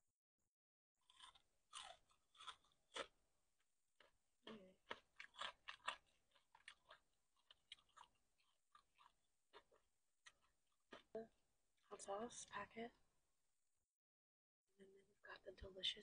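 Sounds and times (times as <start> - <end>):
crunchy chewing of fried chicken: 1.0 - 3.2, 4.0 - 11.1.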